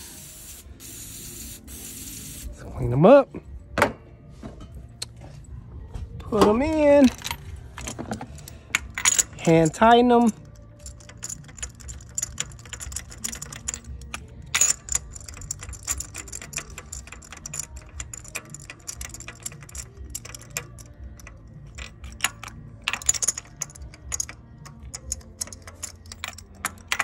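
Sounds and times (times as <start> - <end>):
metallic socket clicking and rattling: 6.7 - 27.0.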